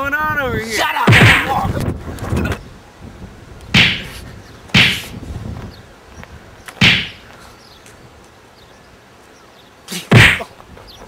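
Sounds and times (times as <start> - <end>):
sharp swishing whooshes: 3.8 - 5.2, 6.8 - 7.2.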